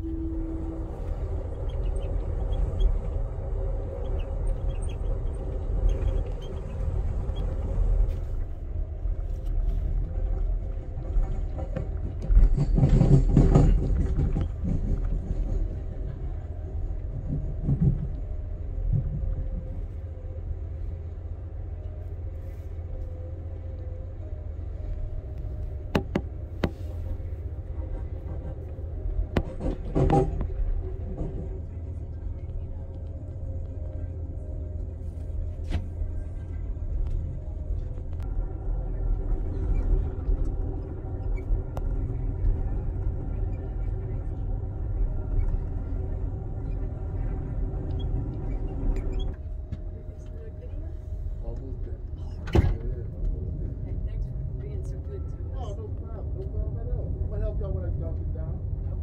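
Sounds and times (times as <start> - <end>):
train rumbling on track: 0.0 - 59.0.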